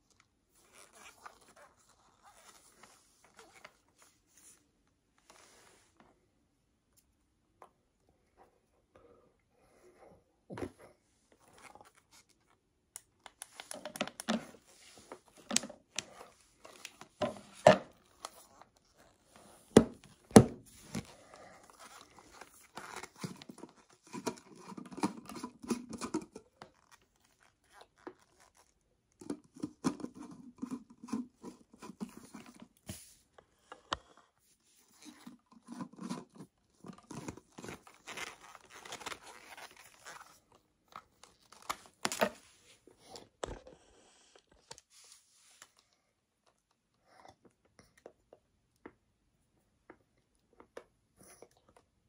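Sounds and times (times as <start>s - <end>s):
plastic bottle handling noise: 13.4s - 26.9s, 34.9s - 43.6s.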